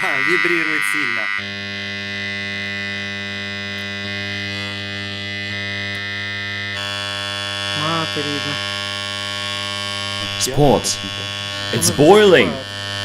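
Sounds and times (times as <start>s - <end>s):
transformer humming: 10.2s - 13.0s.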